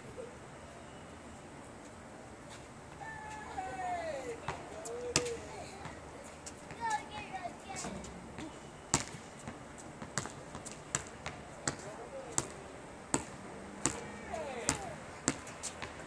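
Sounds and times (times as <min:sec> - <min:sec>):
basketball bouncing on asphalt: 0:04.4 - 0:16.0.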